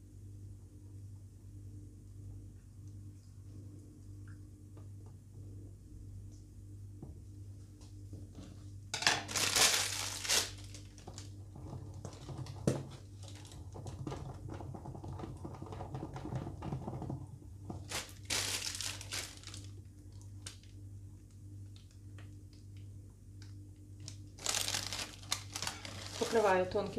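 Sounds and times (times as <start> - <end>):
low steady hum: 0.0 - 26.9
plastic piping bag crinkling: 9.2 - 11.4, 13.1 - 13.8, 17.7 - 20.8, 24.0 - 26.9.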